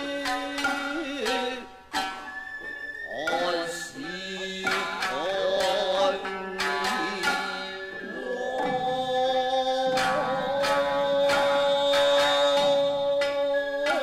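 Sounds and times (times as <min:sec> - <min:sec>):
long held pitched tones: 0:00.0 - 0:14.0
sharp drum strikes: 0:03.3 - 0:14.0.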